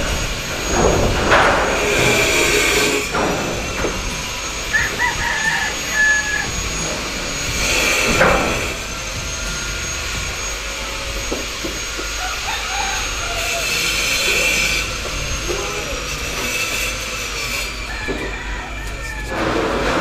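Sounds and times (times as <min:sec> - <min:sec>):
rooster crowing: 0:04.6 - 0:06.8, 0:12.1 - 0:14.0, 0:17.8 - 0:19.8.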